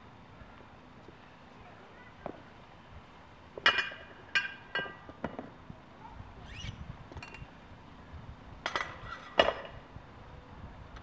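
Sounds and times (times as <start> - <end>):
short rising squeak: 6.4 - 7.4.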